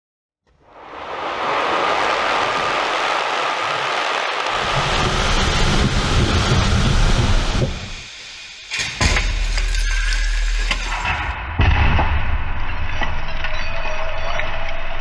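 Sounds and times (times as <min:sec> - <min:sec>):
rushing rumble of car: 0:00.6 - 0:08.1
glass shattering: 0:08.7 - 0:11.3
loud car crash impact: 0:08.9 - 0:12.6.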